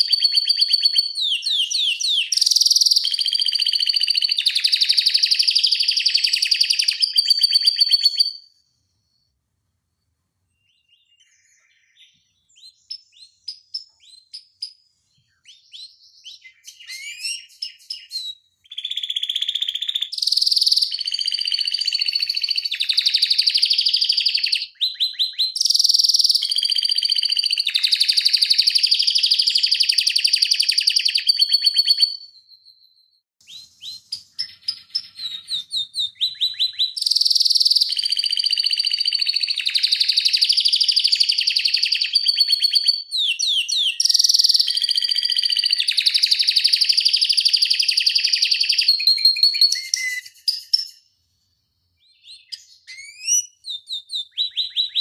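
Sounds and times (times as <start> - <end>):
canary trilling: 0.0 - 8.5, 16.6 - 32.6, 33.8 - 50.6
soft bird chirps: 0.0 - 9.4, 10.0 - 55.0.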